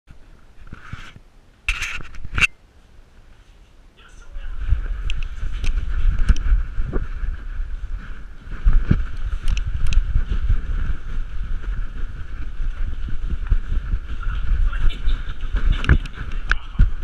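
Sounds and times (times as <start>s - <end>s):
camera handling thumps and rubbing: 0.6s - 2.5s.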